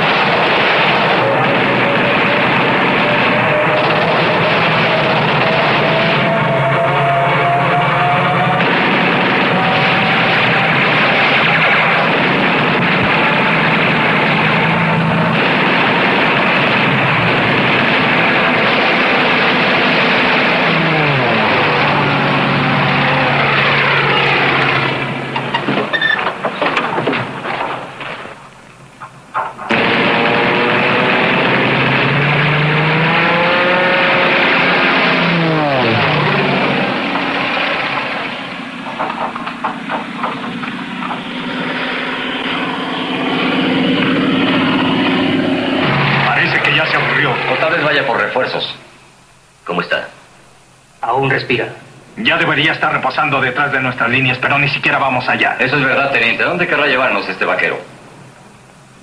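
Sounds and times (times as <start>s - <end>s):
propeller planes flying past: 0.0s - 26.5s, 33.7s - 48.5s
sharp crackling bursts: 0.0s - 59.0s.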